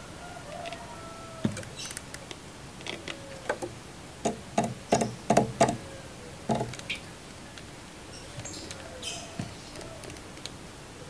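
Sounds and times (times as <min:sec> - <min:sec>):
light taps in bamboo cage: 0:01.4 - 0:05.8, 0:06.5 - 0:07.7.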